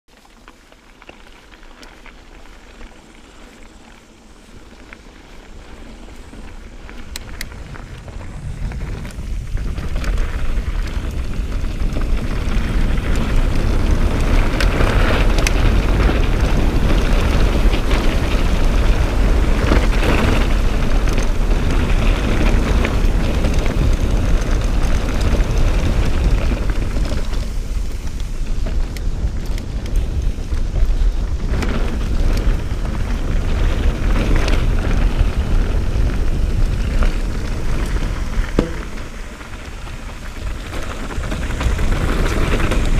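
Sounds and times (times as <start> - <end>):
bike tyres rolling on dirt: 0.1 - 42.9
wind buffeting microphone: 4.3 - 42.9.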